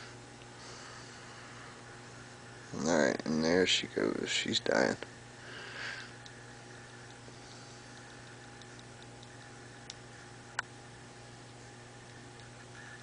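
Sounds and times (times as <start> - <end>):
steady low hum: 0.0 - 13.0
sharp clicks: 7.9 - 10.0.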